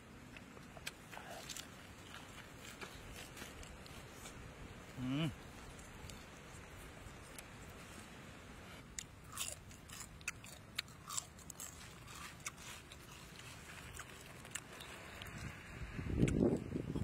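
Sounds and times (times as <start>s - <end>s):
roasted insects crunching: 9.0s - 15.6s.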